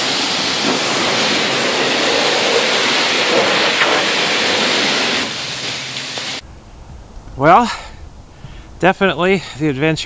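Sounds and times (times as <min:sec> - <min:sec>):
pressure washer spraying a car: 0:00.0 - 0:06.4.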